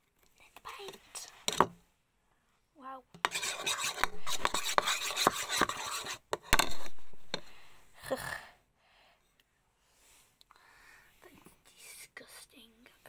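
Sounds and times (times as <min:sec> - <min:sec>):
close rubbing and scraping: 0:03.2 - 0:07.8.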